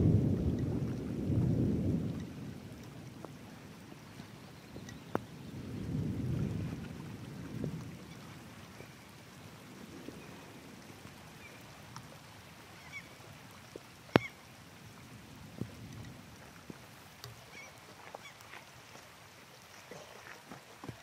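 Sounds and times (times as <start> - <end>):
thunder rumble: 0.0 - 11.7
faint bird calls: 12.7 - 13.3, 14.1 - 14.5, 17.4 - 18.5.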